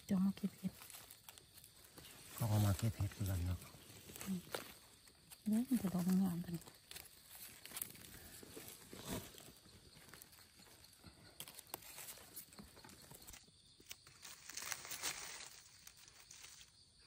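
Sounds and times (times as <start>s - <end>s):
dry leaves and twigs crackling: 0.0s - 17.0s.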